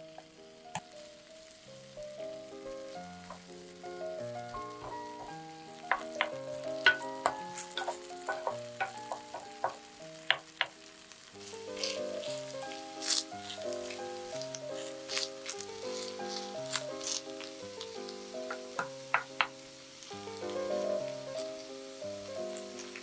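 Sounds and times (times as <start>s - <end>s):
potato sizzling in oil: 0.0s - 23.0s
soft background music: 0.0s - 23.0s
spatula tapping a pan: 2.7s - 11.1s, 11.7s - 21.7s.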